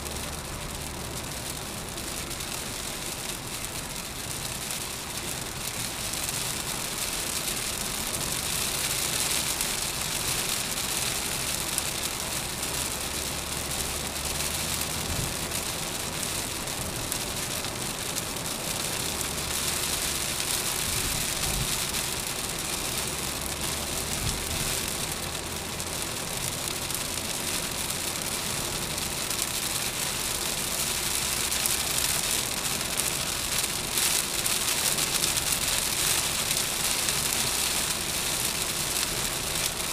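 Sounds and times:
heavy rain drumming on car roof: 0.0s - 39.9s
tyres rumbling on wet road: 0.0s - 39.9s.

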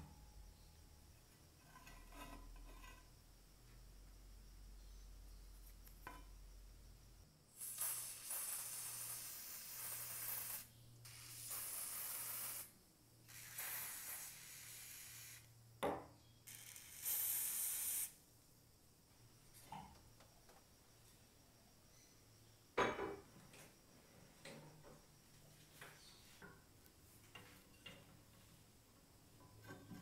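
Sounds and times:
aerosol can spraying: 7.6s - 12.7s, 13.3s - 15.5s, 16.5s - 18.2s.

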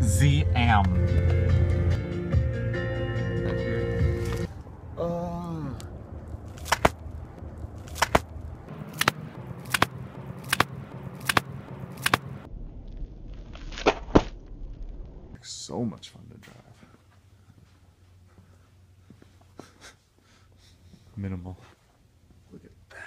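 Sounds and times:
foot stamping on ice crust: 6.6s - 7.0s.

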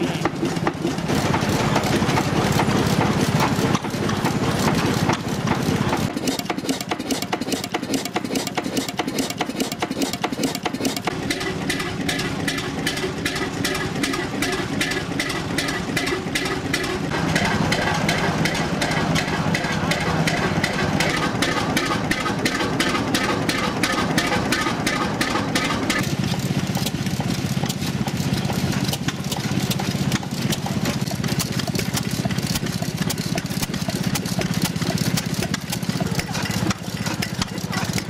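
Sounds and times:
stationary engines knocking: 0.0s - 38.0s.

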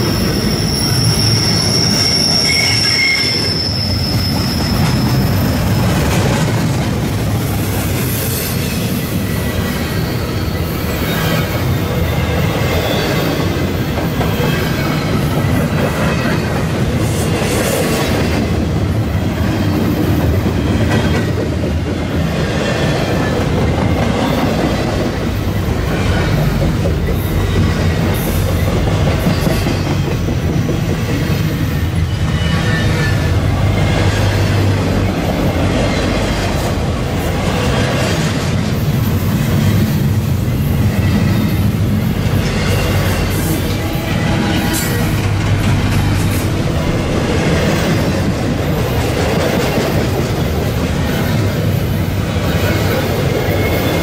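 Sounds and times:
faint high wheel squeal: 0.0s - 5.9s, 8.3s - 13.5s, 31.8s - 34.4s
train wheels rumbling on rail: 0.0s - 54.0s.

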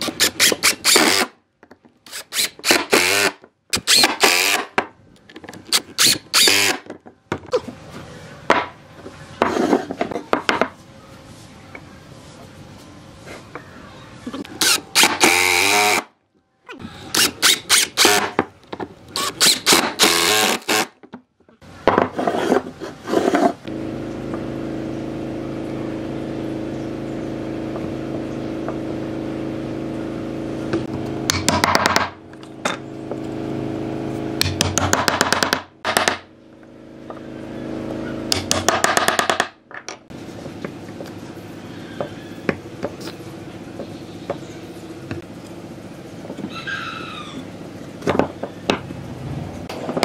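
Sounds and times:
steady low hum: 40.0s - 50.0s.

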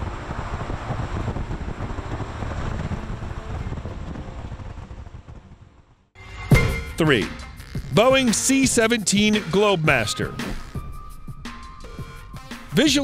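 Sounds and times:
wind on microphone: 0.0s - 6.0s
jet engines rushing in flight: 0.0s - 6.2s.

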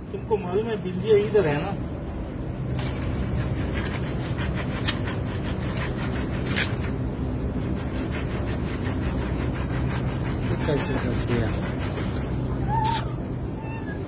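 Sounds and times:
tape rubbing and scraping on pipe: 2.7s - 13.2s.

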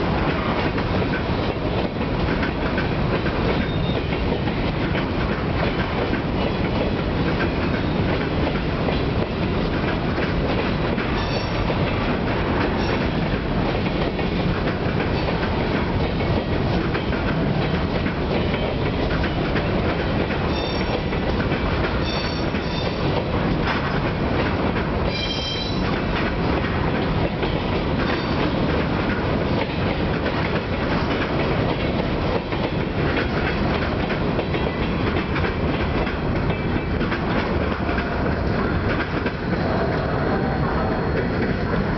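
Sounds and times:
train wheels rumbling and clattering: 0.0s - 41.9s
high-pitched wheel squeals: 11.2s - 11.6s, 20.5s - 20.9s, 22.0s - 22.9s, 25.1s - 25.8s.

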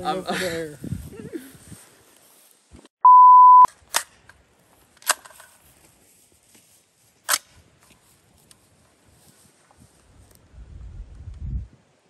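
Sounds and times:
rifle metallic clicks: 3.7s - 4.4s, 5.0s - 5.6s, 7.2s - 8.0s.

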